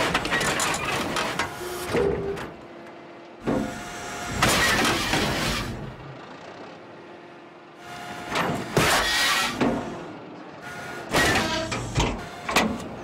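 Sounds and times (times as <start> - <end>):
excavator engine and hydraulics: 0.0 - 13.0
excavator bucket smashing metal: 4.3 - 5.8.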